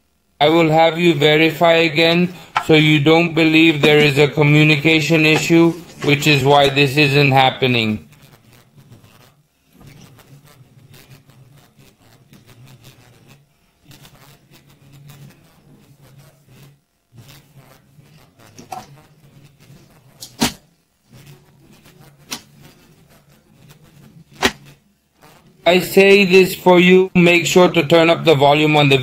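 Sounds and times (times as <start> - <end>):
low steady hum: 0.0 - 13.2
handling wires and connectors: 3.6 - 6.8.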